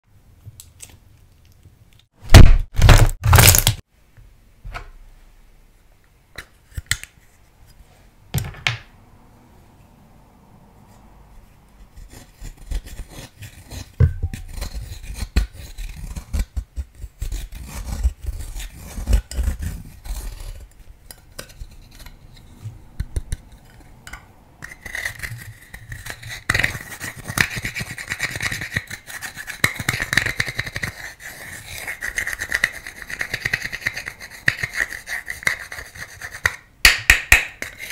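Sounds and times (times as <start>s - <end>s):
tool scraping eyeshadow: 11.8s - 36.6s.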